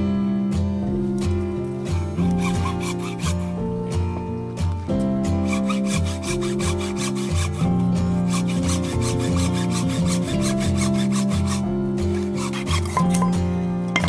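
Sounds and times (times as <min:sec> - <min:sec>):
background music: 0:00.0 - 0:14.0
hacksaw cutting bamboo: 0:01.9 - 0:03.6, 0:05.2 - 0:13.4.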